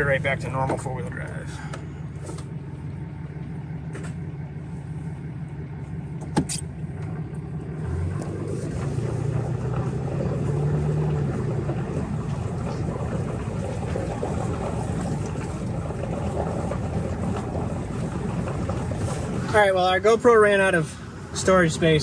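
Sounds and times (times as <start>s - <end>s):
diesel engine running: 0.0s - 22.0s
sharp click: 6.2s - 6.7s.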